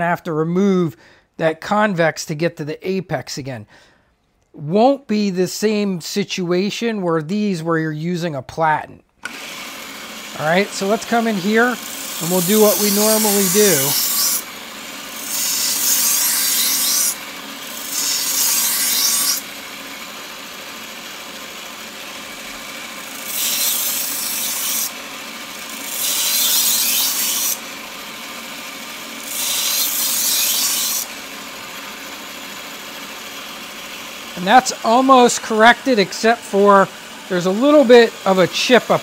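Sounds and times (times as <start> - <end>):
belt grinder motor hum: 9.2 - 39.0
knife grinding on belt: 29.3 - 31.1.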